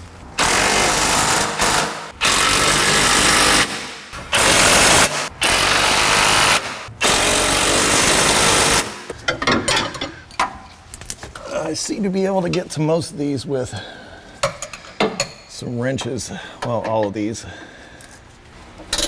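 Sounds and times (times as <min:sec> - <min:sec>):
impact wrench hammering: 0:00.4 - 0:09.6.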